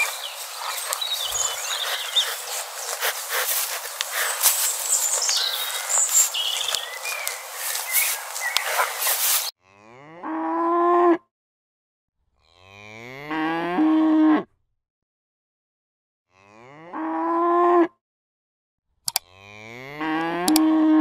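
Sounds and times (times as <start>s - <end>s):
cow mooing: 9.6s - 11.2s, 16.3s - 17.9s, 19.2s - 21.0s.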